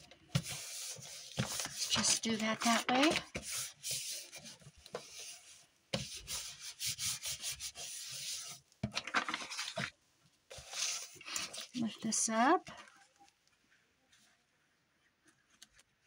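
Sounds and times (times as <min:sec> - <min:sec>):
paper and cardboard rubbing: 0:00.3 - 0:09.9, 0:10.5 - 0:12.2.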